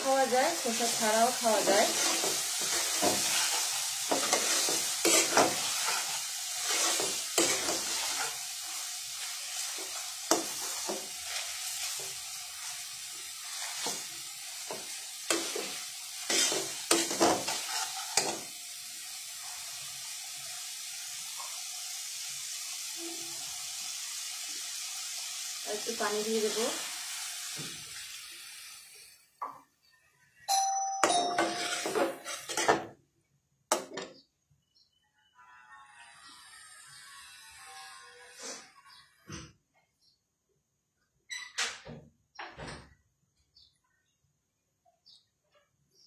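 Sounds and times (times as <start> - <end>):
curry sizzling in oil: 0.0 - 29.6, 31.4 - 32.8
spatula scraping metal pan: 0.2 - 18.6, 31.1 - 32.9, 35.6 - 39.0.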